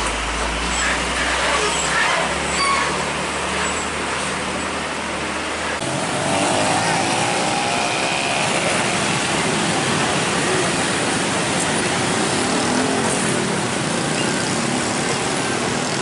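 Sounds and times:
truck diesel engine passing: 0.0 - 16.0
motorcycles idling: 5.8 - 16.0.

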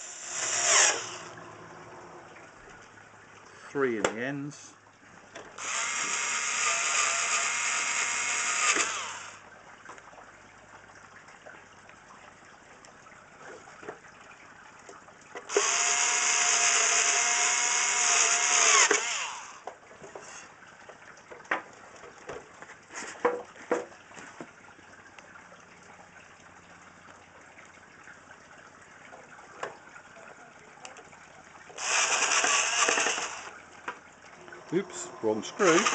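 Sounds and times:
cordless screwdriver driving screws: 0.0 - 1.3, 5.6 - 9.3, 15.5 - 19.4, 31.8 - 33.5, 35.6 - 35.9.

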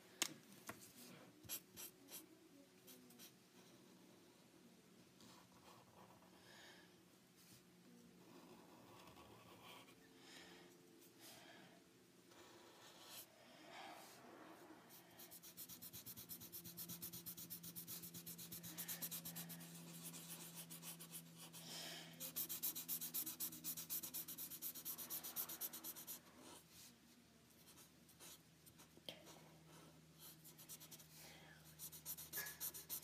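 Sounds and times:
marker scratching on paper: 1.4 - 2.3, 15.2 - 21.6, 22.2 - 26.6, 30.2 - 31.1, 31.7 - 33.0.

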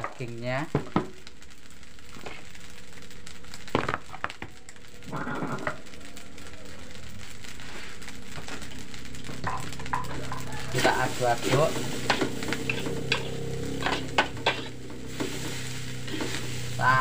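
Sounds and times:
fried rice sizzling in a wok: 0.0 - 17.0.

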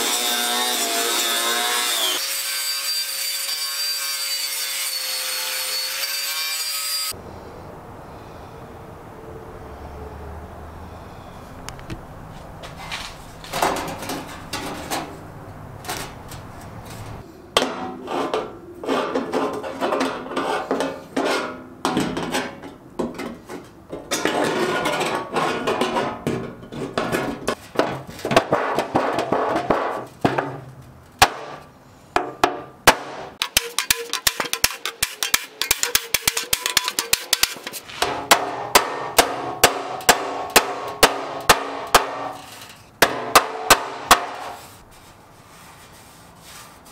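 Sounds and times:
hammer striking sheet steel: 31.2 - 44.7.

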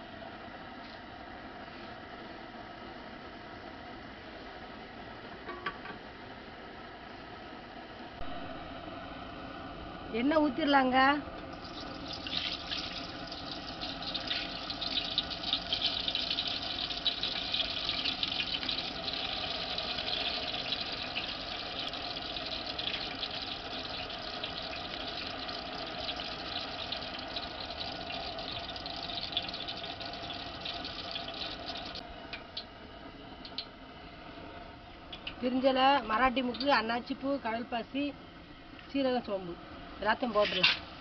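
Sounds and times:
oil pouring and splashing into pot: 11.6 - 32.0.

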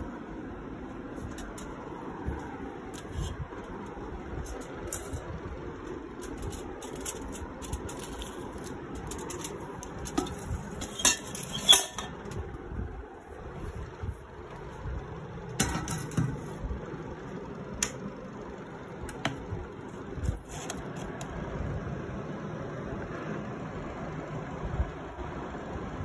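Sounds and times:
metal plate clinking on glass: 10.1 - 12.1.

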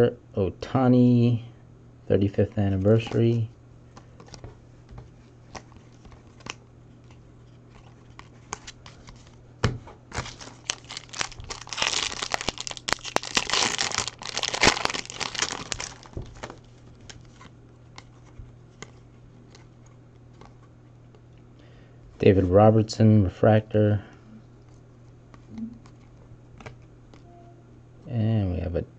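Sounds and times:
foil wrapper crinkling and tearing: 10.1 - 17.5
cards clicking when handled: 25.3 - 27.2.

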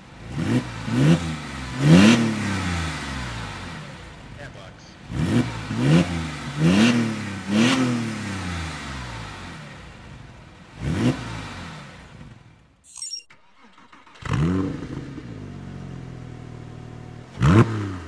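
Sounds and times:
car engine revving and idling: 0.0 - 12.8, 13.5 - 18.0.

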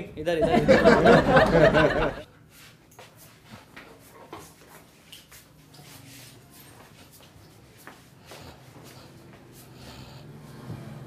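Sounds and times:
man talking: 0.0 - 1.1.

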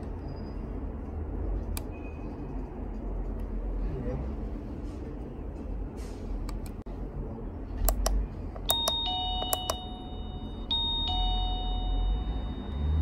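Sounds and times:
doorbell button clicks: 8.6 - 12.3
two-note electronic ding-dong chime: 8.7 - 13.0.

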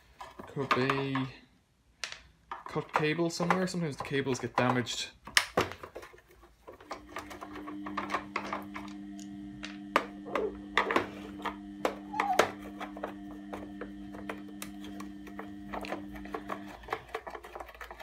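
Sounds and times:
steady low hum: 6.8 - 17.2
screwdriver clicking and scraping: 15.3 - 18.0.

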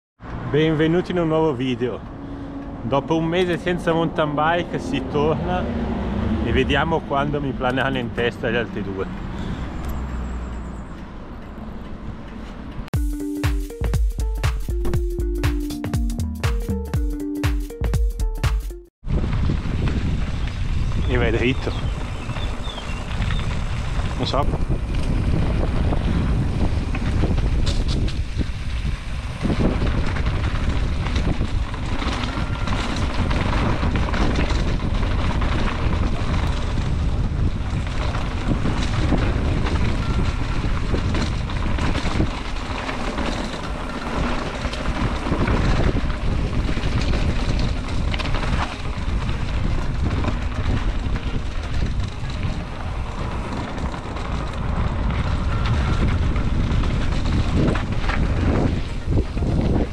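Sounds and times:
wind buffeting microphone: 19.0 - 59.9
bike knocks and rattles: 29.4 - 59.9.

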